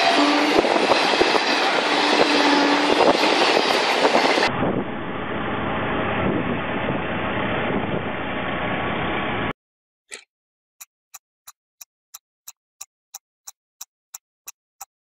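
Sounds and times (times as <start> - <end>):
street traffic: 0.0 - 7.8
auto-rickshaw engine running: 0.0 - 9.5.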